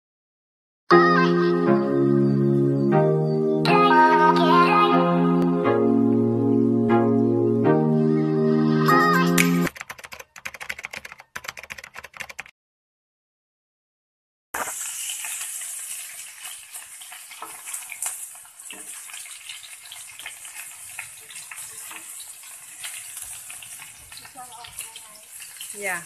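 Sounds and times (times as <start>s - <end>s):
fish sizzling in a pan: 14.6s - 26.0s
spatula tapping and scraping pan: 16.7s - 19.3s.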